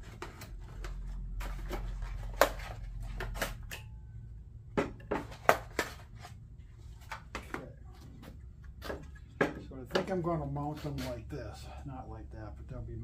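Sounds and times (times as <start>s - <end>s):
cardboard packaging clicks and rustles: 0.0s - 3.8s
steady low hum: 0.0s - 13.0s.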